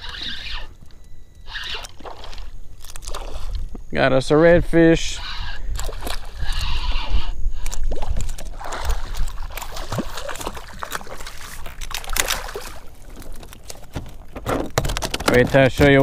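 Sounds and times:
fish thrashing and splashing water: 0:01.9 - 0:03.5, 0:07.9 - 0:14.0.

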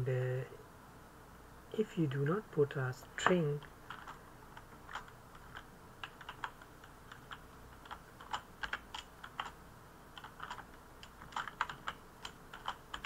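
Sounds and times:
typing on computer keyboard: 0:03.2 - 0:13.0.

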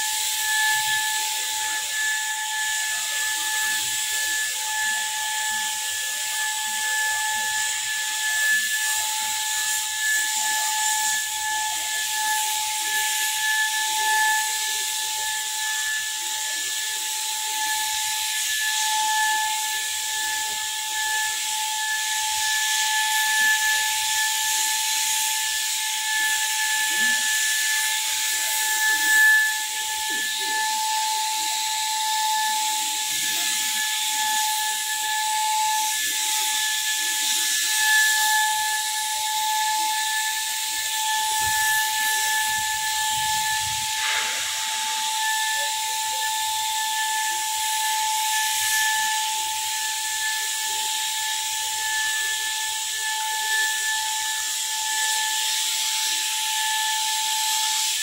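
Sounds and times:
air and paint spray hiss: 0:00.0 - 0:58.0
spray gun motor whine: 0:00.0 - 0:58.0.

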